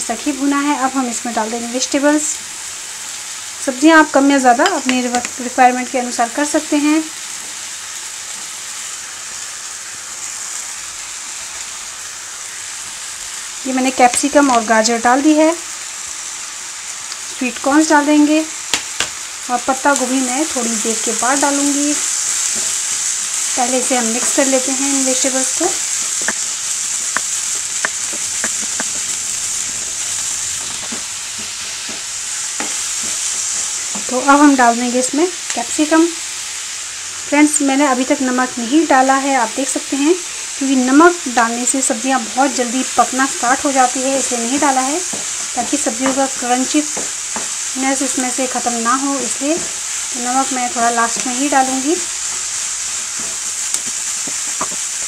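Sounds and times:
vegetables sizzling in oil: 0.0 - 55.0
spatula tapping and scraping pan: 26.1 - 34.1, 44.6 - 48.4, 49.3 - 50.0, 52.2 - 55.0.

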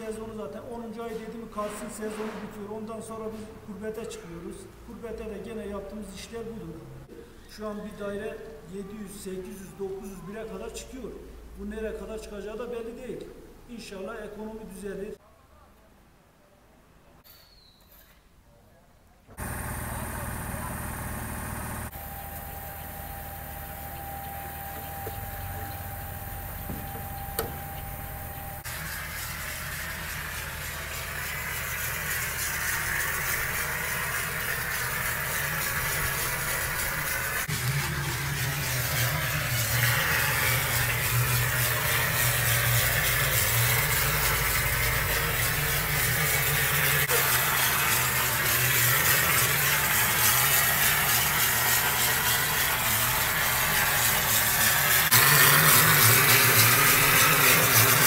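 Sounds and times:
plastering machine humming and hissing: 19.4 - 58.0.

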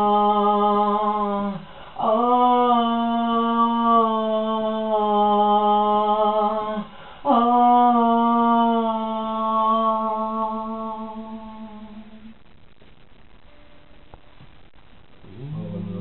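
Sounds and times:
person singing long wordless notes: 0.0 - 12.4
singer breathing: 1.6 - 2.0, 6.8 - 7.3.

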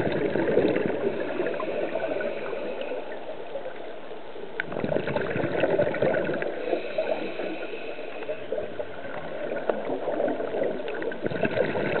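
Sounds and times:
river water gurgling underwater: 0.0 - 2.5, 4.6 - 6.9, 8.6 - 12.0
small crackles and clicks: 2.8 - 6.5, 8.2 - 12.0.

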